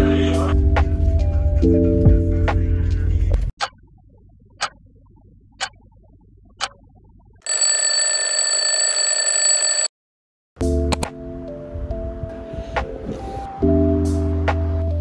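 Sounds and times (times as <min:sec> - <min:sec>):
alarm clock ringing: 0:07.5 - 0:09.9
alarm clock ticking: 0:07.5 - 0:09.9.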